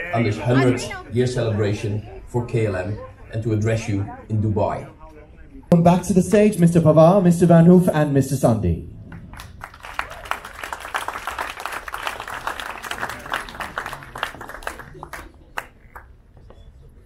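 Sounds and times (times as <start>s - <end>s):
audience applauding: 9.1s - 16.2s.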